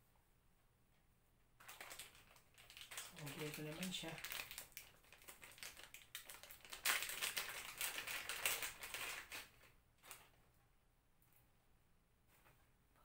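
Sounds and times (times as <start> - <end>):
plastic bag crinkling: 1.6 - 10.4.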